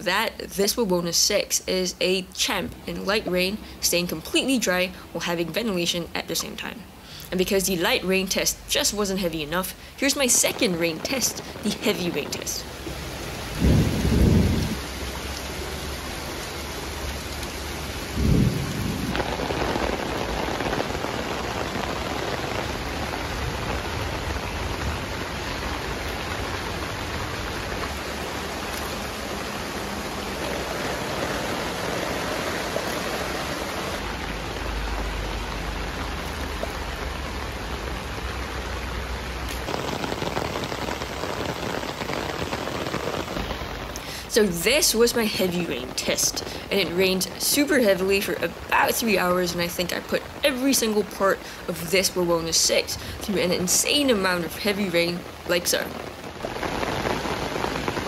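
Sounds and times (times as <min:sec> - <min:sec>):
heavy rain on tent: 0:02.3 - 0:58.0
low thumps: 0:12.6 - 0:14.8.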